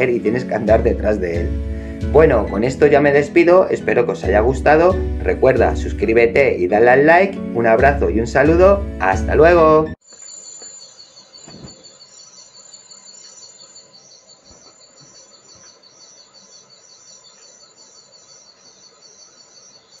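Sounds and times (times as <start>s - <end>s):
crickets chirping: 10.0s - 20.0s.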